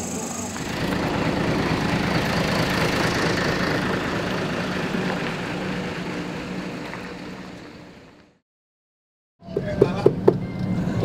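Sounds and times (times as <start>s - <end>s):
vehicle engine droning: 0.0s - 8.4s.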